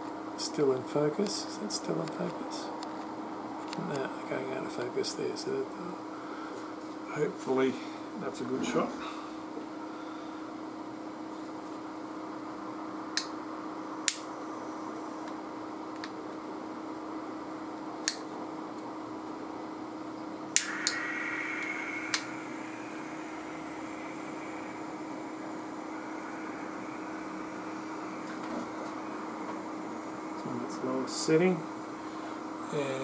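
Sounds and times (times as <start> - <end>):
steady hum with faint hiss: 0.0 - 33.0
sharp clicks: 20.6 - 22.3
short hiss: 20.6 - 30.7.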